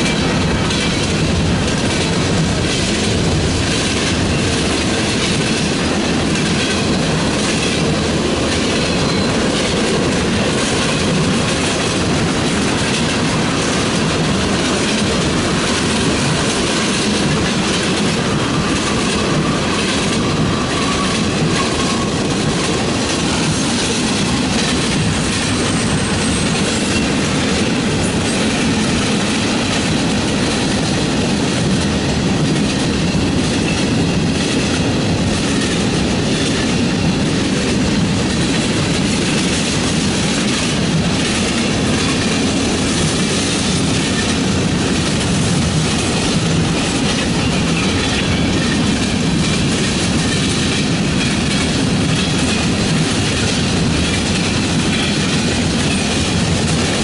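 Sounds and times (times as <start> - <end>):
freight train wheels rumbling on rails: 0.0 - 57.0.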